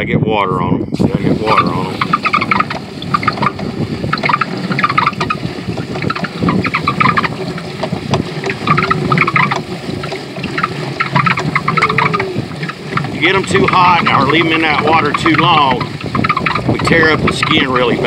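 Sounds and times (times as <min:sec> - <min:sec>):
steady watery rush: 0:00.9 - 0:18.0
wet slapping and sloshing: 0:01.4 - 0:18.0.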